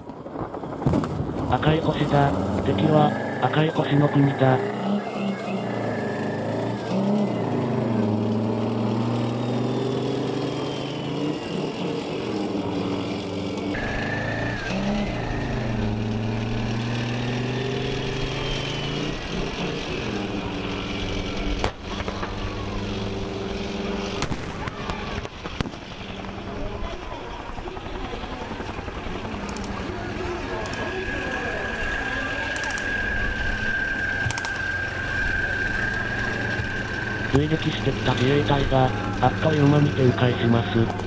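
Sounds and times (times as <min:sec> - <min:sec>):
pyrotechnic bangs: 0:00.0 - 0:02.7, 0:24.2 - 0:26.0
tank diesel engine running: 0:00.0 - 0:41.0.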